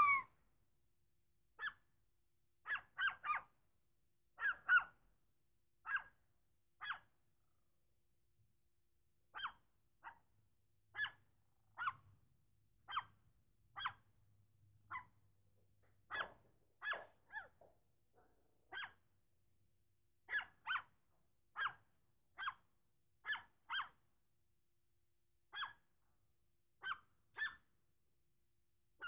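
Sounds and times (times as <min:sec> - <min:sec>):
small dog barking: 0:16.1 - 0:17.7, 0:20.3 - 0:20.9.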